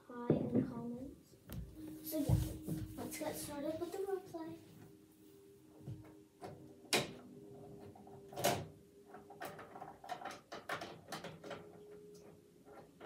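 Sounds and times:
plastic toy clicks and knocks: 0:08.3 - 0:11.9.

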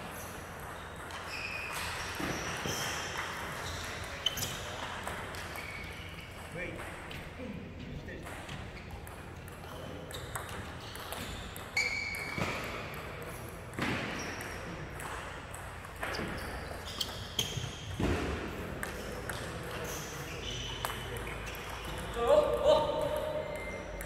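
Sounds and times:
short high squeaks: 0:11.8 - 0:12.4.

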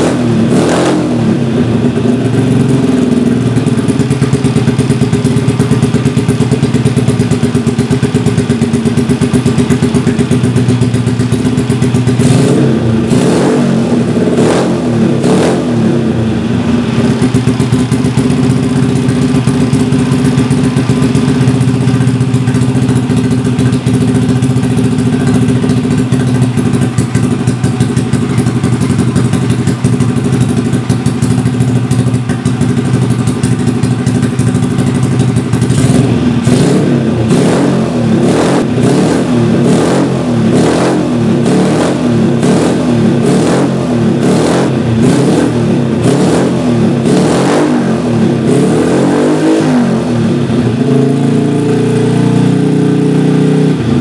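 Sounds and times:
motorcycle engine idling: 0:00.0 - 0:54.0
motorcycle throttle blips: 0:00.1 - 0:51.7.

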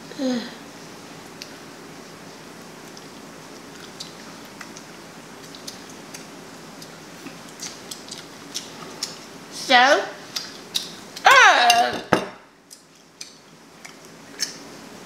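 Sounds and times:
room hum: 0:00.0 - 0:15.0
faint chewing mouth clicks: 0:02.9 - 0:09.2, 0:12.7 - 0:14.6.

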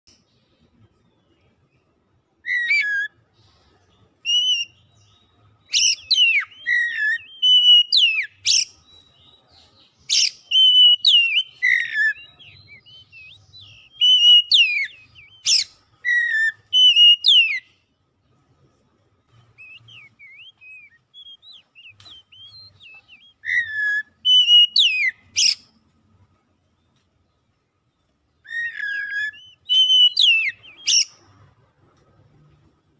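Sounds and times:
bird singing whistled phrases: 0:02.4 - 0:03.2, 0:04.2 - 0:17.7, 0:19.4 - 0:25.6, 0:28.4 - 0:31.2.

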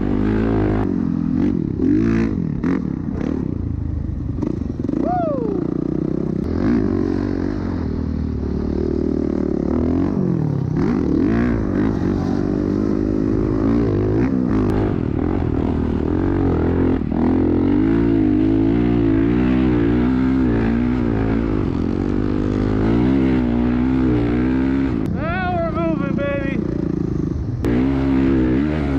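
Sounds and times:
dirt bike engine revving: 0:00.0 - 0:28.9.

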